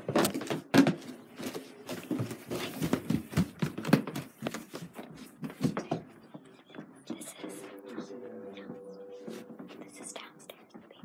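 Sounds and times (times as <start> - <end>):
handheld camera rustling and bumping: 0.0 - 6.0
footsteps: 0.0 - 11.0.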